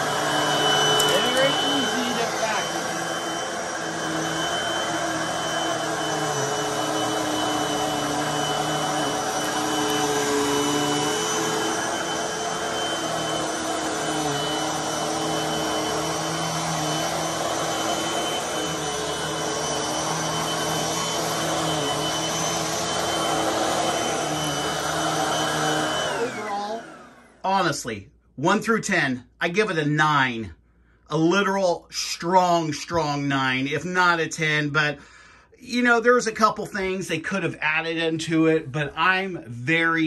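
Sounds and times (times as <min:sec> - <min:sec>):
vacuum cleaner running on carpet: 0:00.0 - 0:27.5.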